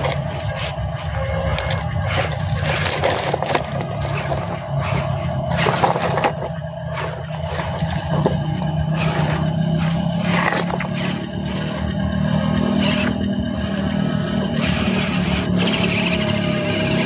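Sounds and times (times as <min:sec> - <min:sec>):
wheels crunching on gravel: 0:00.0 - 0:12.0
toy truck motor drone: 0:00.0 - 0:17.0.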